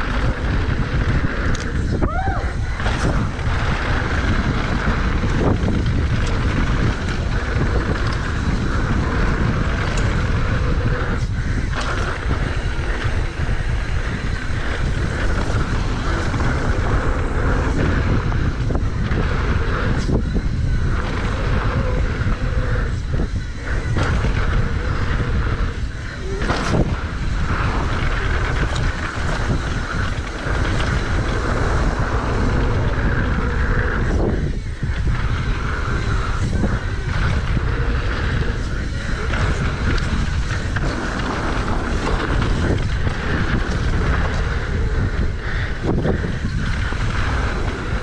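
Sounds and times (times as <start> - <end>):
bike rattling over bumps: 0.0 - 48.0
bike tyres rumbling on dirt: 0.0 - 48.0
wind on microphone: 0.0 - 48.0.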